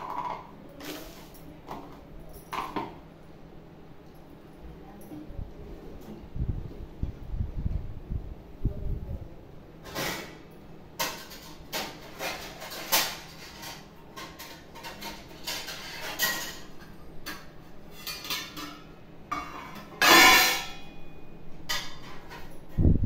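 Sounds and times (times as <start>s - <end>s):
steel plates clinking: 12.2s - 22.7s.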